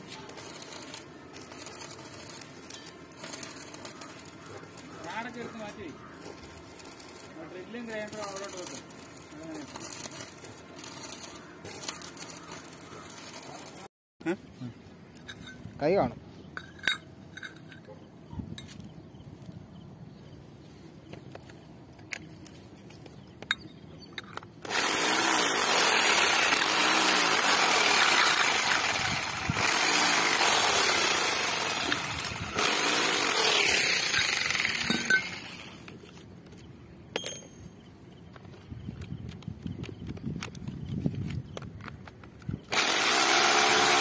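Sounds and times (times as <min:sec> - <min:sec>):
power tool running: 0:00.1 - 0:13.9, 0:24.6 - 0:36.0, 0:42.7 - 0:44.0
small clicks and knocks: 0:38.2 - 0:42.6.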